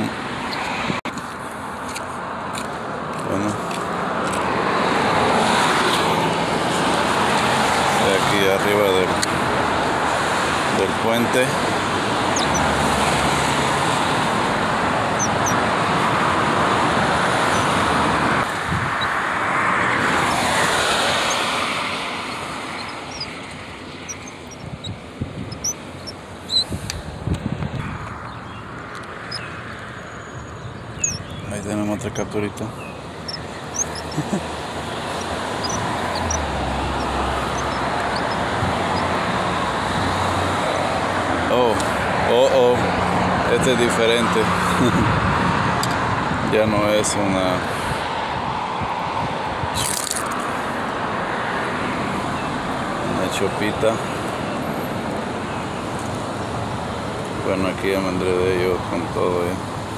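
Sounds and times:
road traffic passing: 0.0 - 59.9
bird chirps: 12.3 - 12.7, 15.1 - 15.6, 22.2 - 26.7, 28.2 - 39.2.

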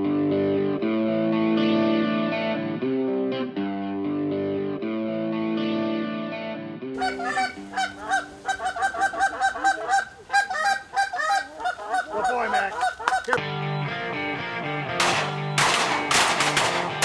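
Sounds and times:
guitar music: 0.0 - 8.5, 13.3 - 17.0
geese honking: 7.0 - 13.4.

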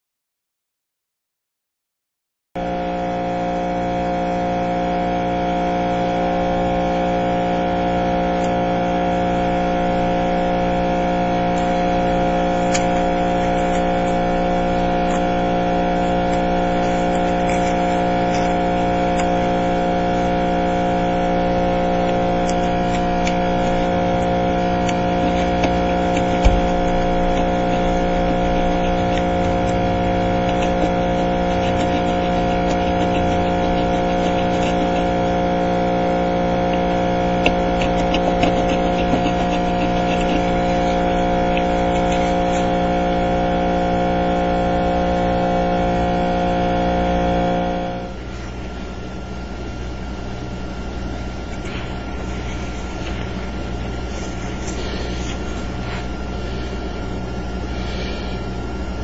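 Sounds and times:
steady mechanical hum: 2.6 - 59.0.

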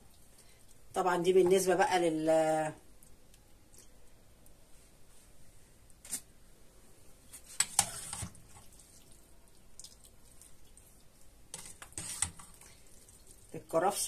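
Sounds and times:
soup splashing and sloshing: 7.9 - 13.6.

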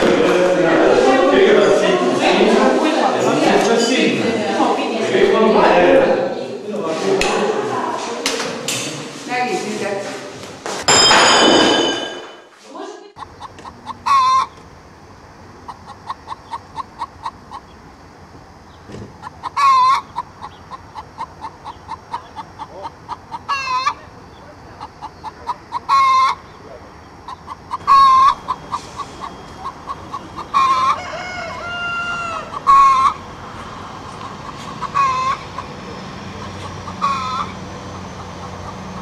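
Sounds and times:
hen clucking: 13.2 - 39.0.

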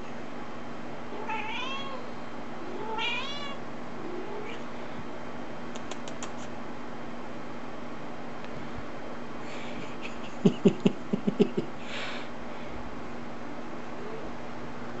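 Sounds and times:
kitten meowing: 1.2 - 2.0, 2.8 - 3.6.

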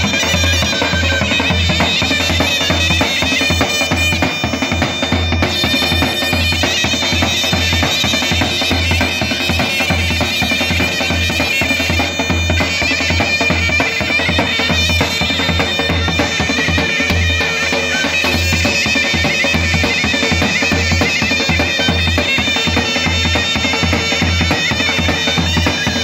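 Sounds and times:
shrill nasal reed pipes melody: 0.0 - 26.0.

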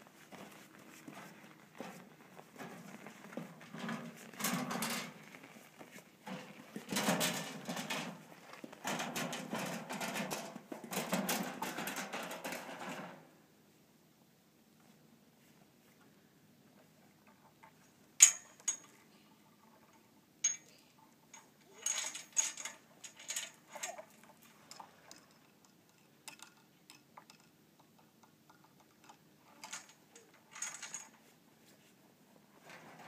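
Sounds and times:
rustling and shuffling: 0.0 - 13.2, 29.5 - 33.0
metal chain and latch clinking: 18.2 - 19.0, 20.4 - 24.1, 29.0 - 31.2.

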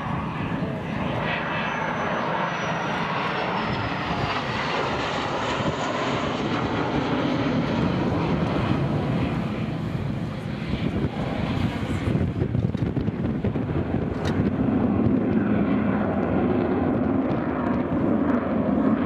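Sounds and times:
faint high whine: 0.0 - 6.8
jet engine roar: 0.0 - 19.0.

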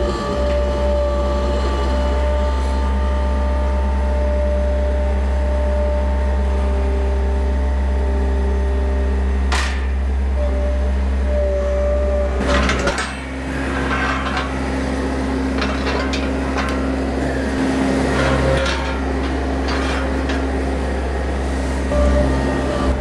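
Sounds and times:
loader engine idling: 0.0 - 23.0
metal hurdles clanking: 9.5 - 10.0, 12.4 - 21.4.

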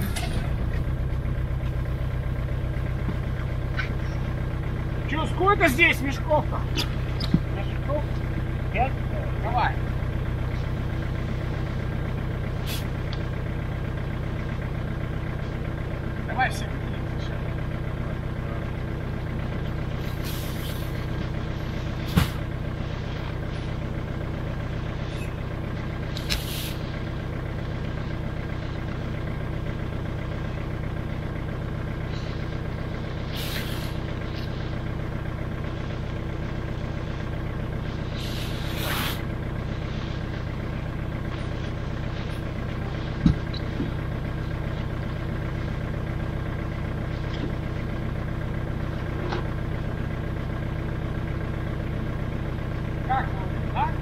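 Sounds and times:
atv engine idling: 0.0 - 54.0
short hisses: 12.6 - 12.9, 20.0 - 20.9, 26.2 - 26.9, 33.3 - 34.0, 38.1 - 39.3.

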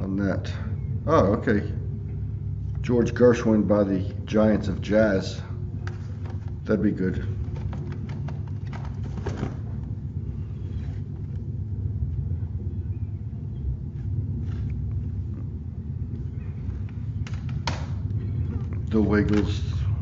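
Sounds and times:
low rumble: 0.0 - 20.0
plastic cd cases clicking: 7.4 - 9.6.

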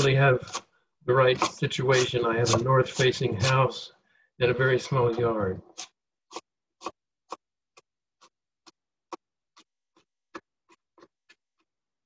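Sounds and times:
knife chopping on cutting board: 1.3 - 3.6.

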